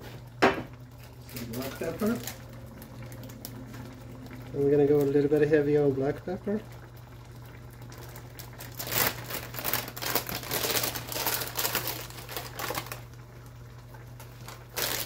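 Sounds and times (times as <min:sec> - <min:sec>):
low hum: 0:00.8 - 0:07.9.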